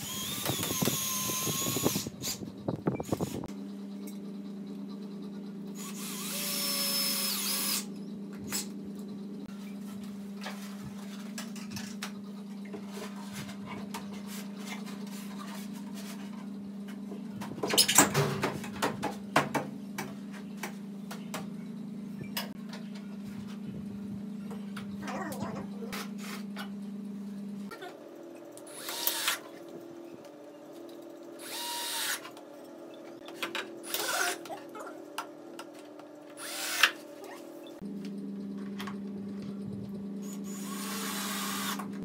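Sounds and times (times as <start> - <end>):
cordless drill running: 0.0 - 2.4, 5.8 - 7.9, 28.7 - 29.4, 31.4 - 32.2, 36.4 - 37.0, 40.4 - 41.9
steady low hum: 0.0 - 42.0.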